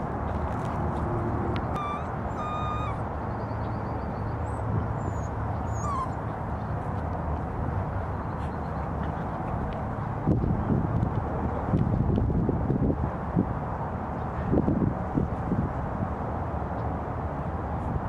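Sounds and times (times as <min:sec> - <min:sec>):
puppies whimpering: 0:01.7 - 0:03.0, 0:04.5 - 0:06.4.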